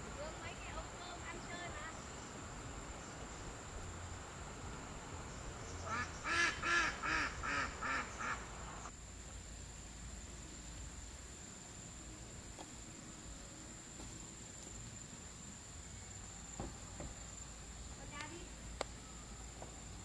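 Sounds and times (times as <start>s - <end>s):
duck quacking: 5.8s - 8.4s.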